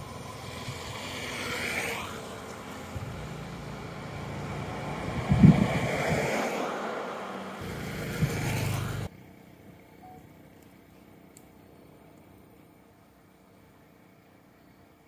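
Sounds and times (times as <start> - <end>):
road and wind noise: 0.0 - 15.0
vehicle engine hum: 0.0 - 15.0.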